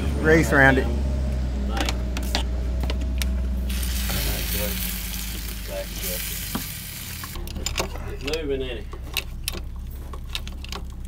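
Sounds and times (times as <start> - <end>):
hissing sizzle: 3.7 - 7.4.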